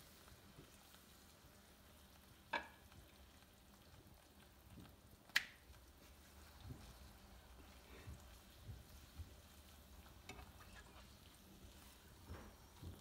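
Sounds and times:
tortillas frying in oil: 0.0s - 13.0s.

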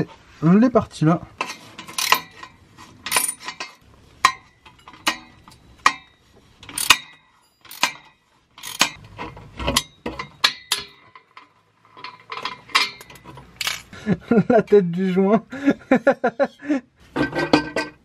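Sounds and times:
ratcheting wrench metallic clicks: 1.4s - 3.8s, 4.6s - 9.0s.

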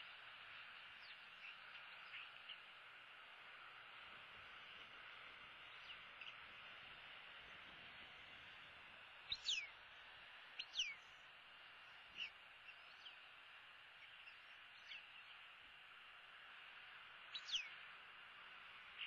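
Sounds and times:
bird whistled calls: 9.3s - 9.7s, 10.6s - 11.0s, 17.3s - 17.8s.

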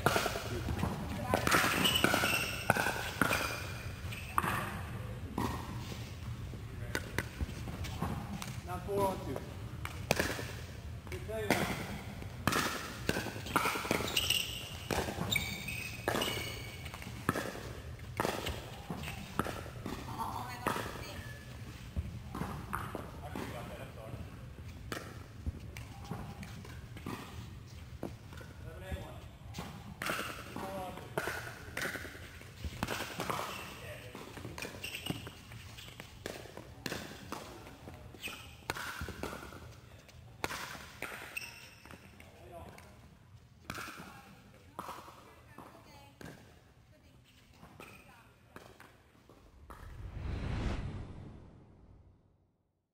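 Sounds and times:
sneakers squeaking on court: 0.8s - 4.7s, 13.4s - 17.4s, 34.6s - 36.2s, 38.1s - 39.0s.

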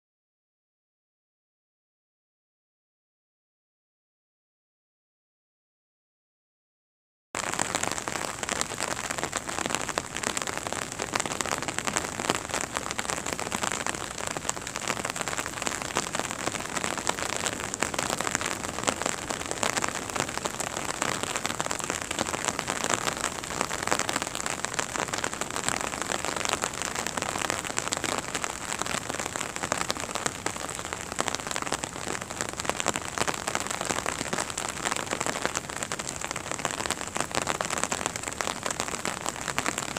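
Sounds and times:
steady rain falling: 7.4s - 39.9s.

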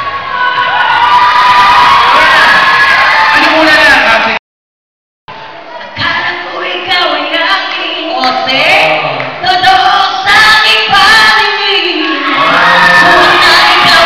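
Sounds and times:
women singing together: 13.1s - 14.0s.

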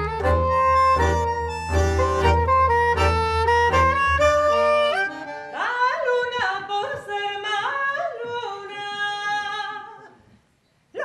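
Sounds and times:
instrumental music with bass: 0.0s - 5.6s.

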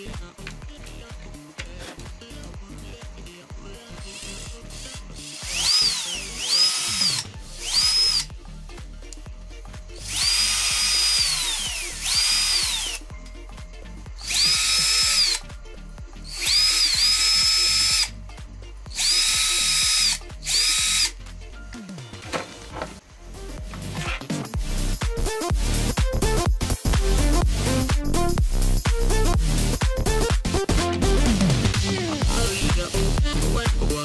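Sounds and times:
drill motor whining: 4.0s - 8.3s, 10.0s - 13.0s, 14.2s - 15.4s, 16.2s - 18.1s, 18.9s - 21.2s.

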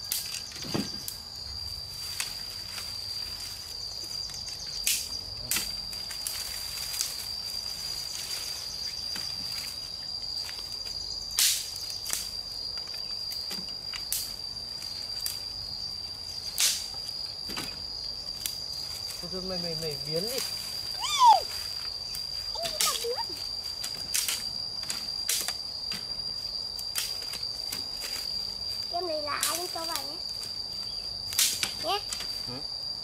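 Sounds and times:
sticks and leaves rustling: 0.0s - 32.5s
insects droning: 0.0s - 33.0s
twigs snapping: 16.5s - 17.0s, 26.8s - 28.2s, 31.3s - 32.3s.

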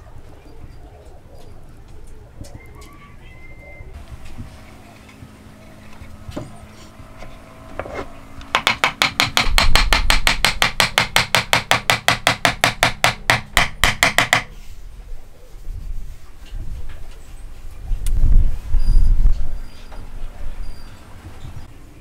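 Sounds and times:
hammer rapping on wood: 8.5s - 14.5s.

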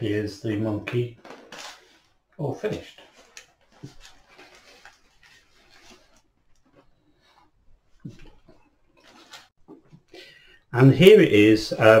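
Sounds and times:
tissue paper rustling and crackling: 2.9s - 6.3s.

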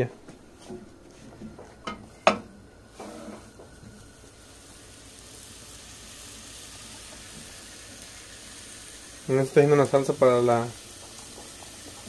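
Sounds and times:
steak sizzling: 2.3s - 12.0s.

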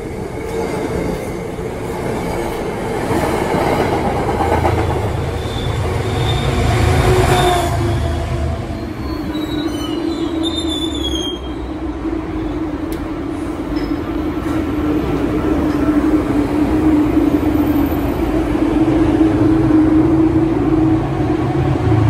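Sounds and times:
subway train running hum: 0.0s - 22.0s
high wheel squeals: 5.4s - 7.8s, 8.6s - 11.8s.

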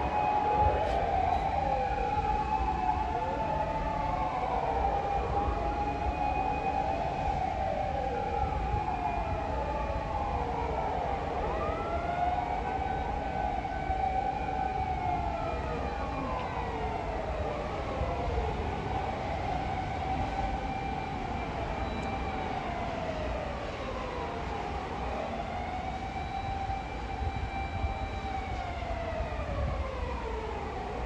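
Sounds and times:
fire engine sirens wailing: 0.0s - 31.0s.

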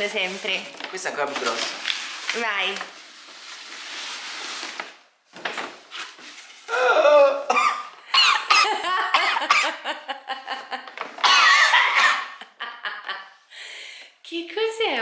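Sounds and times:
packaging rustling and clattering: 0.0s - 6.7s
excited squeals and laughter: 11.4s - 13.2s.

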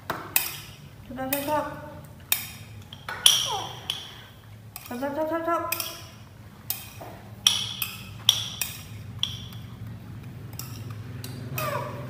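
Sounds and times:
low steady hum: 0.0s - 12.0s
metal spoon clinking ceramic bowl: 0.3s - 1.5s, 2.3s - 5.0s, 5.7s - 9.8s, 10.5s - 12.0s.

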